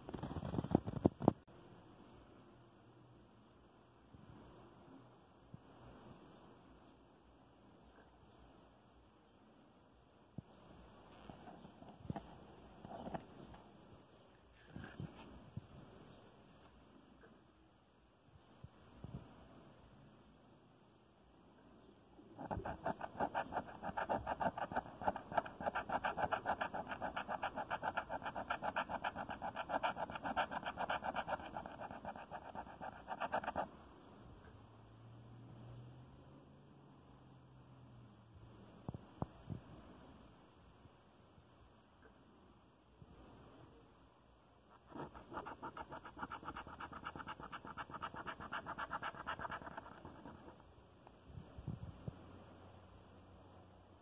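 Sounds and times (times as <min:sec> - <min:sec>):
coin scraping scratch card: 0:22.4 - 0:33.7, 0:44.8 - 0:50.6.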